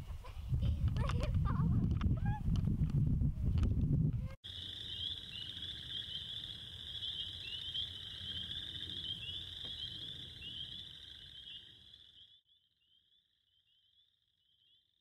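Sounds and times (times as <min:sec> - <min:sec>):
frogs peeping: 0:04.4 - 0:14.9.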